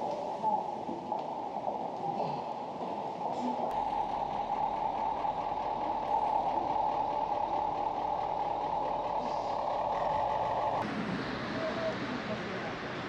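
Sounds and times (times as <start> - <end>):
bus engine idling: 3.7 - 13.0.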